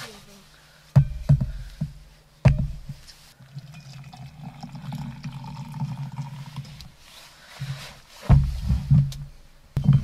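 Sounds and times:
water pouring into a metal tumbler: 0:03.4 - 0:06.6
sharp thump: 0:08.2 - 0:09.2.

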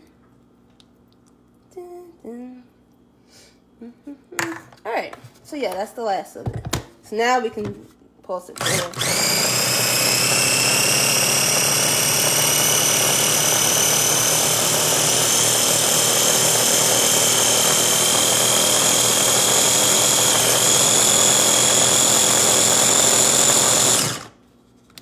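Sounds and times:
food chopper motor whirring: 0:08.6 - 0:24.4.

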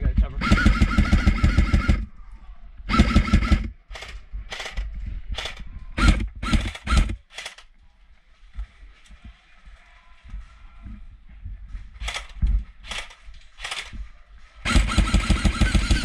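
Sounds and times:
airsoft rifle firing bursts: 0:00.4 - 0:02.1, 0:02.9 - 0:07.6, 0:14.6 - 0:16.0.

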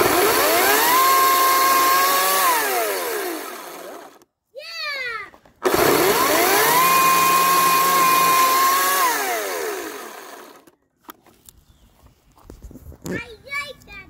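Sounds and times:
electric chainsaw whine: 0:00.0 - 0:04.2, 0:05.6 - 0:10.8.

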